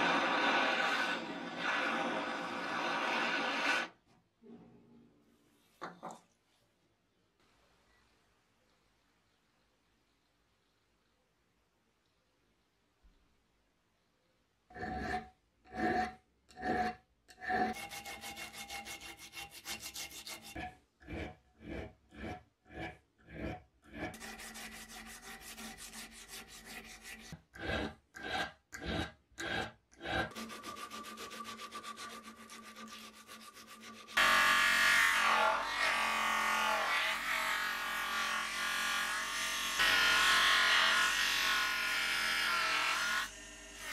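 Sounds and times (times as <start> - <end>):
bench grinder buffing wheel: 0.0 - 4.0, 14.7 - 35.6
abrasive strip rasping on metal: 14.7 - 35.4.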